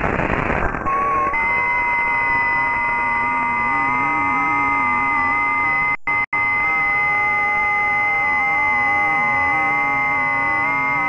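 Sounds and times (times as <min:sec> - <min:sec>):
radio static: 0:00.0 - 0:01.6
steady radio tones: 0:00.0 - 0:11.0
wavering low tone: 0:00.9 - 0:11.0.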